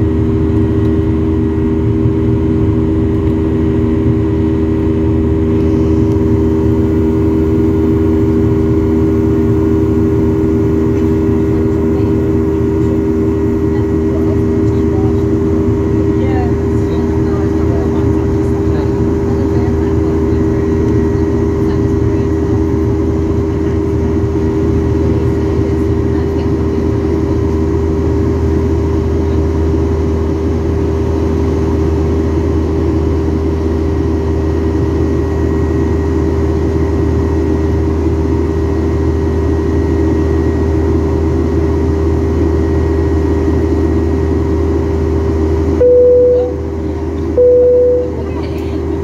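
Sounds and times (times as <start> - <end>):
jet engines droning in cabin: 0.0 - 49.0
short single-pitch tones: 45.8 - 48.6.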